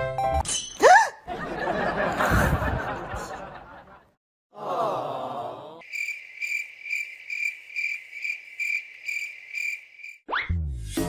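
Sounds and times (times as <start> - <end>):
cricket chirping: 5.8 - 10.2.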